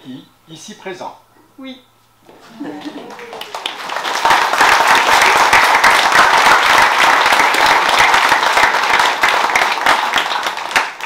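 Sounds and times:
crowd applauding: 2.4s - 11.0s.

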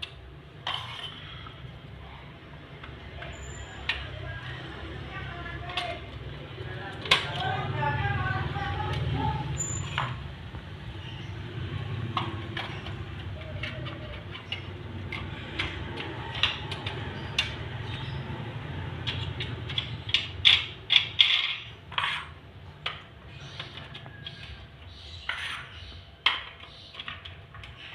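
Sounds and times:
plastic pieces clicking and clacking: 12.1s - 18.1s, 19.0s - 24.6s.

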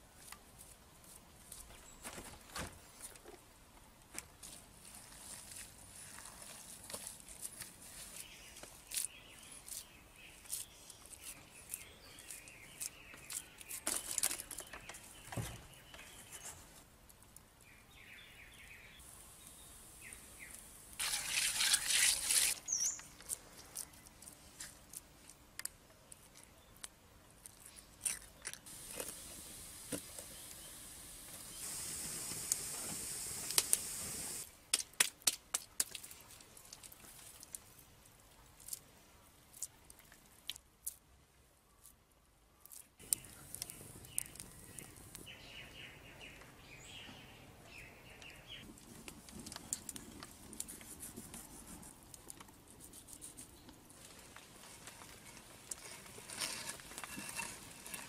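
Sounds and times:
steady high hiss: 18.8s - 23.0s, 28.7s - 34.6s
bird chirps: 22.6s - 23.2s, 43.0s - 48.7s
loud rushing hiss: 28.7s - 34.5s.

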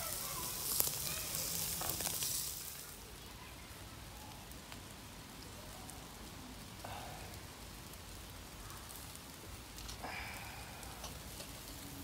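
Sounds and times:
meat sizzling on grill: 0.0s - 12.0s.

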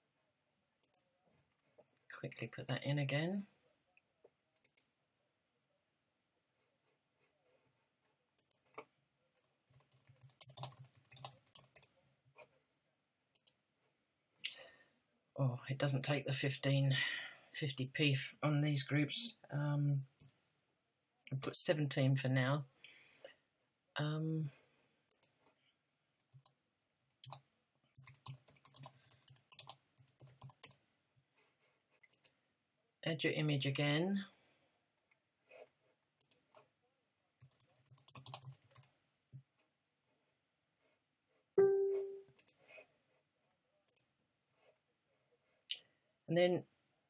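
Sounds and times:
computer keyboard typing: 9.7s - 11.9s, 28.0s - 30.8s, 37.4s - 38.9s.

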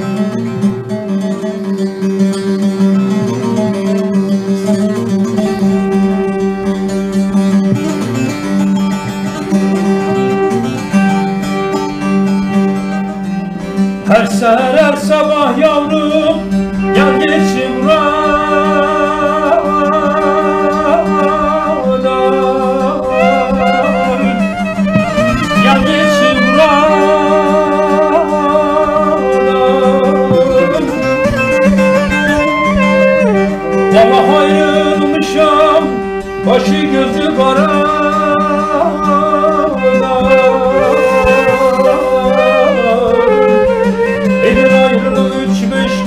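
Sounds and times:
long-necked lute playing: 0.0s - 46.0s
end-blown flute: 9.2s - 46.0s
man singing: 14.0s - 24.5s, 25.4s - 31.3s, 33.7s - 46.0s.

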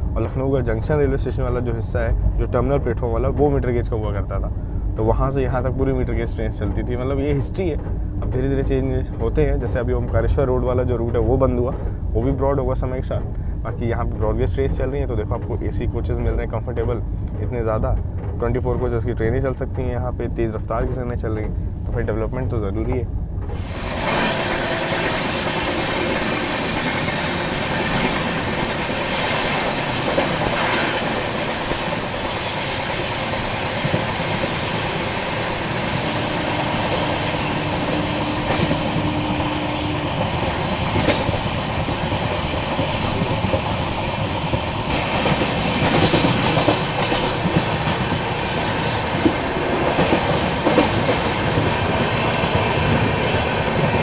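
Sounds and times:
train rumble: 0.0s - 54.0s
train wheels clicking over rail joints: 0.0s - 54.0s.

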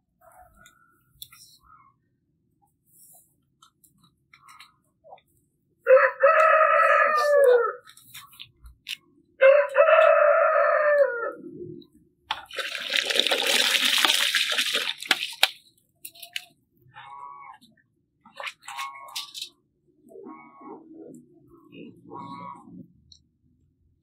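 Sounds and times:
rooster crowing: 5.9s - 7.8s, 9.4s - 11.4s.

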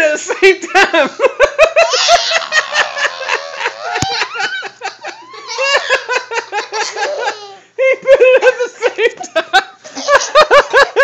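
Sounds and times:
children laughing and squealing: 1.7s - 7.7s.

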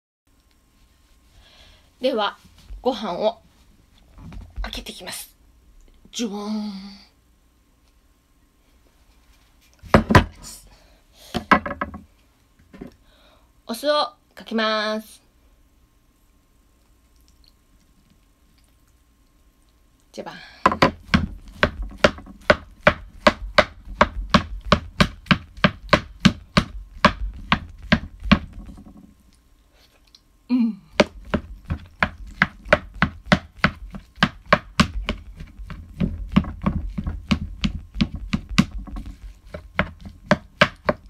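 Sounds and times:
rice paddle cutting rice in a pan: 31.0s - 41.0s.

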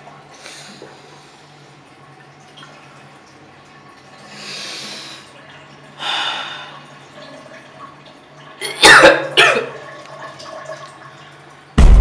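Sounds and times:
man coughing: 8.6s - 9.8s.

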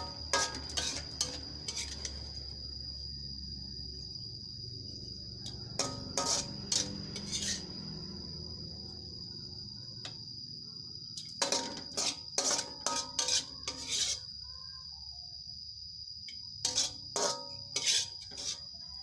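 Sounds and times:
spatula scraping a wok: 0.0s - 2.6s, 5.7s - 7.8s, 11.2s - 14.3s, 16.6s - 18.8s.

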